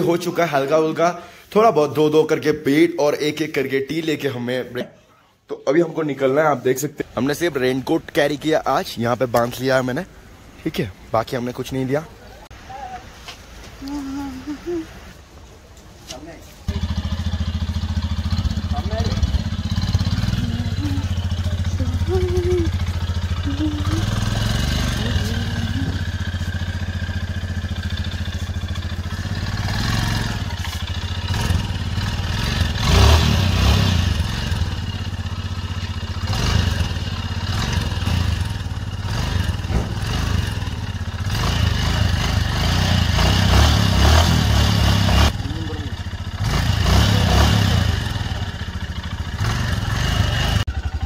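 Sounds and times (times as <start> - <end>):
motorcycle engine revving: 16.7 - 51.0.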